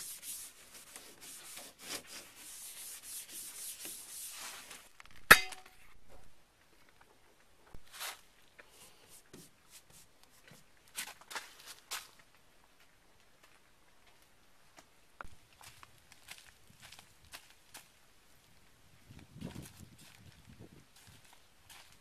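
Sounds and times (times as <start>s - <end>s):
pad rubbing wax on a mold: 0.0s - 4.7s
sharp metallic clank: 5.3s - 5.8s.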